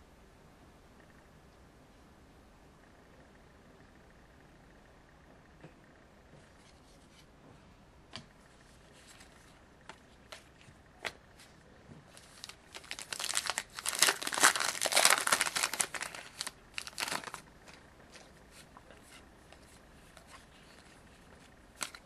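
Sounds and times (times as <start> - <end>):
cards being handled: 8.1 - 22.0
foil wrapper tearing and crinkling: 12.1 - 17.8, 21.8 - 22.0.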